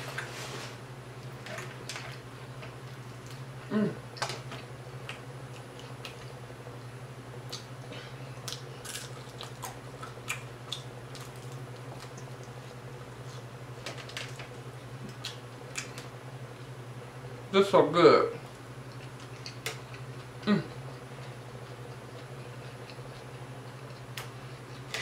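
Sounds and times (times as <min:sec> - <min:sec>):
steady low hum: 0:00.0 - 0:25.0
crunchy chewing: 0:04.5 - 0:06.5, 0:07.4 - 0:13.5, 0:18.5 - 0:25.0.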